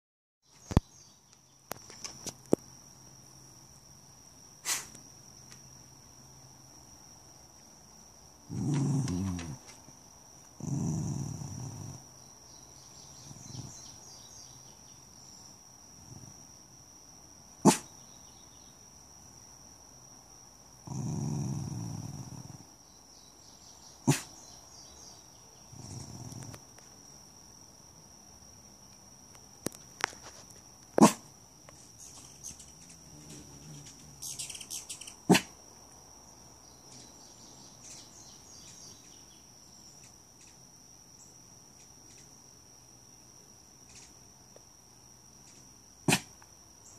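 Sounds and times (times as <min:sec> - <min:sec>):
small dog growling: 0:08.5 - 0:09.8, 0:10.5 - 0:12.1, 0:13.2 - 0:13.9, 0:20.8 - 0:22.7, 0:24.1 - 0:24.3, 0:25.7 - 0:26.8.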